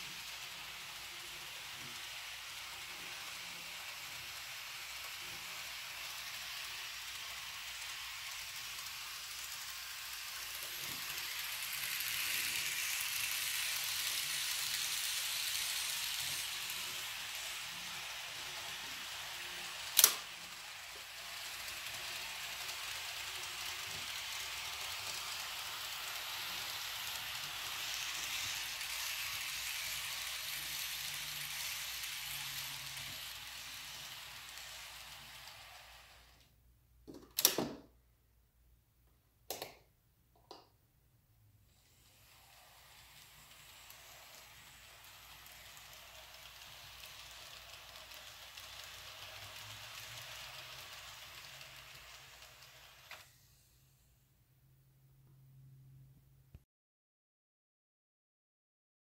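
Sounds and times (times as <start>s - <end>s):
model train whirring on rails: 0.0s - 36.6s, 41.7s - 54.1s
sharp click: 20.0s - 20.2s.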